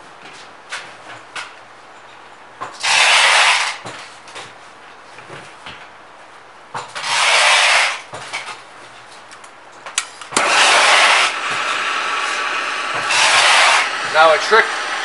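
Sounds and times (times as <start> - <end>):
torch flame hiss: 2.8 - 3.8, 7.0 - 8.0, 10.4 - 15.0
torch trigger click: 10.0 - 14.2.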